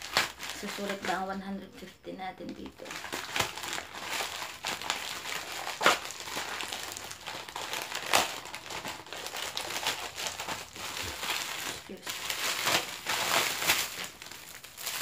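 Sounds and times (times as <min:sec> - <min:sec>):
plastic pouch crinkling and tearing: 0:00.0 - 0:01.4, 0:02.5 - 0:15.0.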